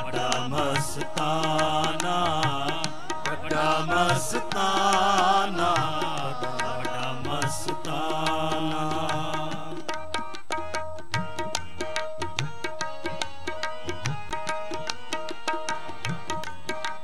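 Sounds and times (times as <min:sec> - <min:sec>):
harmonium melody: 0:00.0 - 0:17.0
tabla strokes: 0:00.0 - 0:17.0.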